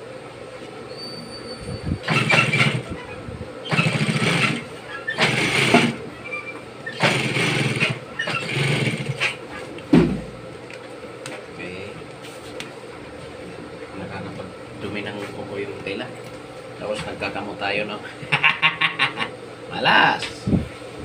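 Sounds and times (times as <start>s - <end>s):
sewing machine stitching: 2.0s - 2.9s, 3.7s - 6.0s, 6.9s - 9.4s.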